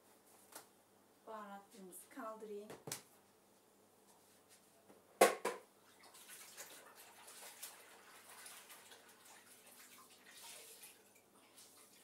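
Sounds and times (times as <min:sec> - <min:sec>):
water splashing and dripping: 0:05.8 - 0:12.0.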